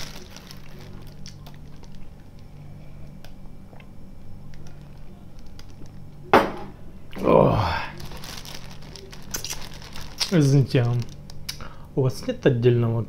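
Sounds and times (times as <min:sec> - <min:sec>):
steady low hum: 0:00.0 - 0:13.0
knock on table: 0:06.4 - 0:06.7.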